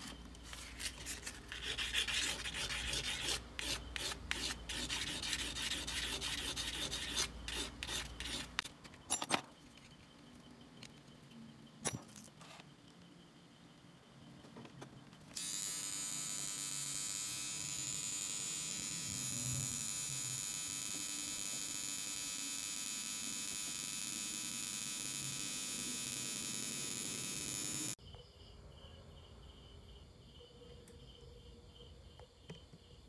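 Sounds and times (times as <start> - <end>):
faint crickets chirping: 0.0 - 33.0
soldering gun buzzing: 15.4 - 28.0.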